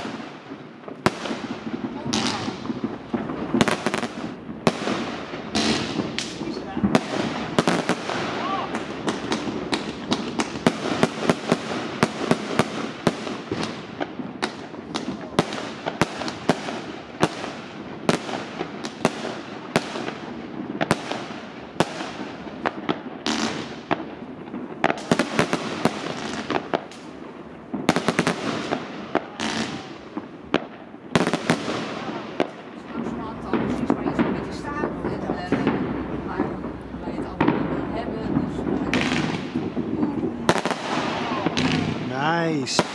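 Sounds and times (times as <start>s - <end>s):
fireworks hissing: 0.0s - 13.9s, 38.4s - 42.9s
fireworks crackle: 0.0s - 42.9s
fireworks sharp bangs: 0.0s - 42.9s.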